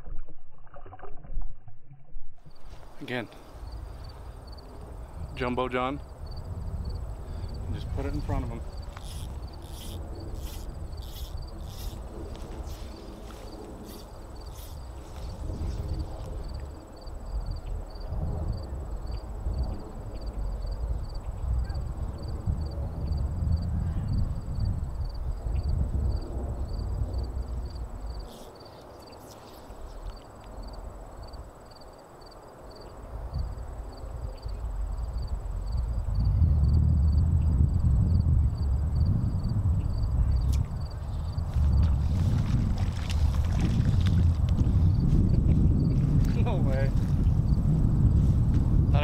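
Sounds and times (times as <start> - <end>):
wind rumble on microphone: 0.0 - 31.6, 32.8 - 49.0
insect raspy high buzz: 2.4 - 48.9
cricket-like chirping: 2.4 - 49.0
thin high insect trill: 6.0 - 18.0, 23.1 - 35.9
thin high-pitched buzz: 8.2 - 12.9
low rumble: 33.3 - 49.0.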